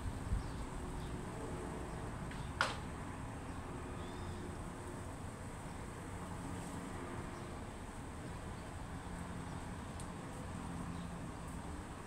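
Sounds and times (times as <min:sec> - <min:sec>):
wind rumble on microphone: 0:00.0 - 0:02.3.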